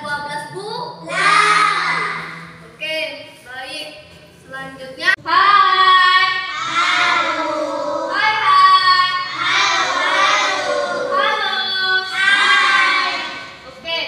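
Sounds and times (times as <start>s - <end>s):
children singing in unison: 6.5s - 8.3s, 9.2s - 13.6s.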